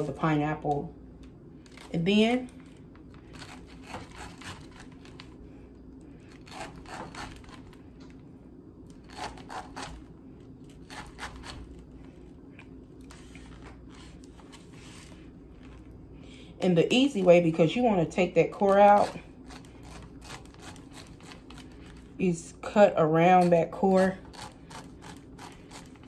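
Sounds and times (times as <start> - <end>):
knife slicing pineapple: 3.3 - 5.3, 6.3 - 7.8, 9.0 - 10.1, 10.7 - 11.8, 18.6 - 22.0.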